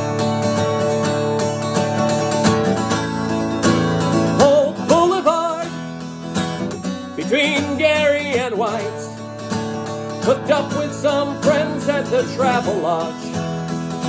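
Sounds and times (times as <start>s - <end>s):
acoustic guitar strummed: 0.0s - 14.0s
man singing: 4.3s - 5.9s, 7.0s - 9.3s, 10.2s - 13.5s.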